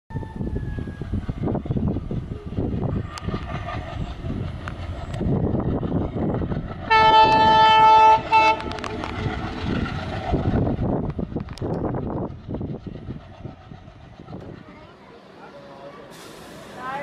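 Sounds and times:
diesel locomotive engine chugging: 0.1s - 17.0s
locomotive horn: 6.9s - 9.0s.

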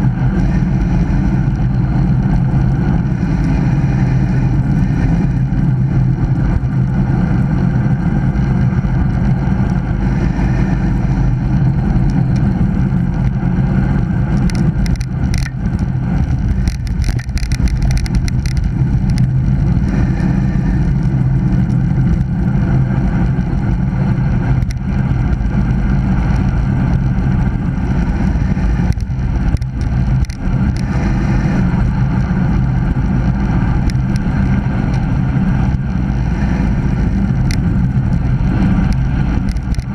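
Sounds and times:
bike rattles: 0.0s - 39.9s
tyres humming on asphalt: 0.0s - 39.9s
wind rush on microphone: 0.0s - 39.9s.

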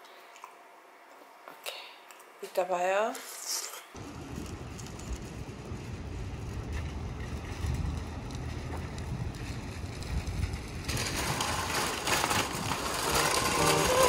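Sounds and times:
shopping cart rattling on asphalt: 4.0s - 14.0s
wind buffeting microphone: 4.0s - 14.0s.

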